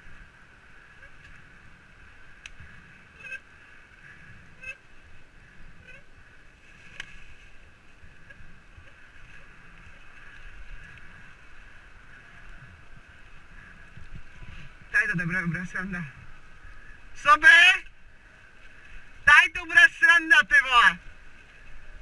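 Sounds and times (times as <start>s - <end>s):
low wind rumble: 0.0s - 22.0s
bike tyres rolling on leaves: 6.2s - 17.2s, 18.0s - 22.0s.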